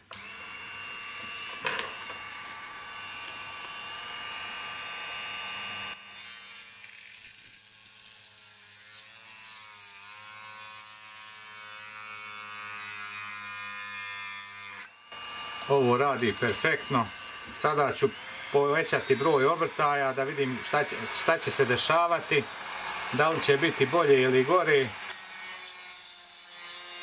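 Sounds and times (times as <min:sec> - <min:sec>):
mini drill cutting plastic: 0:00.0 - 0:27.0.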